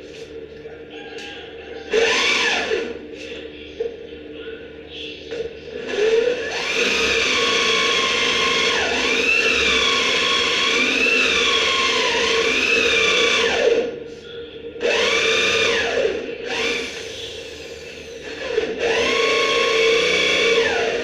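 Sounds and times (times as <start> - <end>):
electric drill into wood: 1.9 - 2.9, 5.8 - 13.9, 14.8 - 17.1, 18.2 - 21.0.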